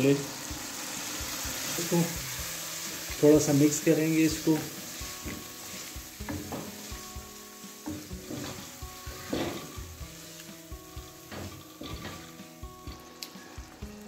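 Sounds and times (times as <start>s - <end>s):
masala sizzling: 0.0s - 14.0s
spatula scraping a pan: 4.4s - 10.5s, 11.2s - 12.4s.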